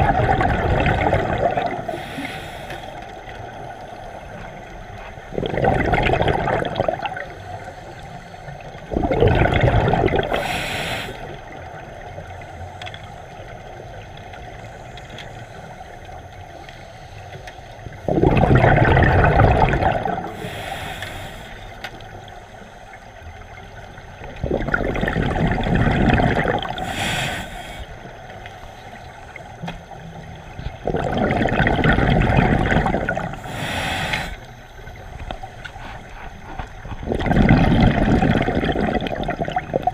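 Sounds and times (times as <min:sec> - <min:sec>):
rumbling exhaled bubbles: 0:00.0 - 0:02.3, 0:03.0 - 0:07.8, 0:08.6 - 0:12.4, 0:17.9 - 0:20.8, 0:23.4 - 0:28.2, 0:29.1 - 0:39.9
regulator hiss: 0:01.6 - 0:05.3, 0:10.2 - 0:13.9, 0:20.0 - 0:24.0, 0:26.4 - 0:30.6, 0:33.2 - 0:36.8.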